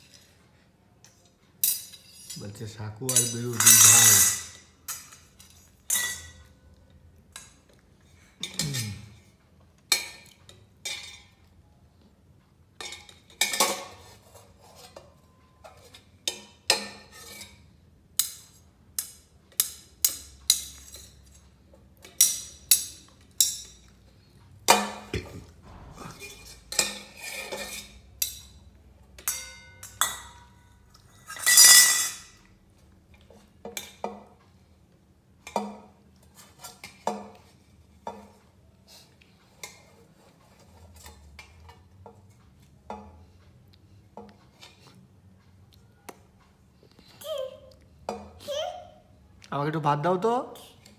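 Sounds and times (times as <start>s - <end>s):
metal pot and ladle clanking: 3.1s - 6.4s, 24.6s - 28.6s.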